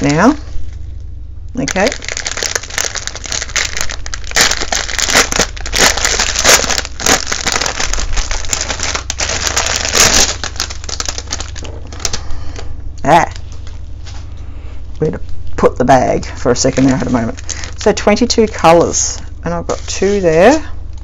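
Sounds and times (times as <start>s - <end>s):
plastic packaging crinkling: 0.0s - 0.9s, 1.6s - 12.3s, 16.6s - 21.0s.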